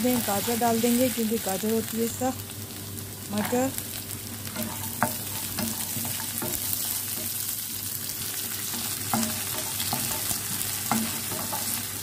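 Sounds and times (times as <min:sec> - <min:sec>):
vegetables sizzling in butter: 0:00.0 - 0:12.0
utensil knocking and scraping pan: 0:04.6 - 0:07.4, 0:08.7 - 0:11.8.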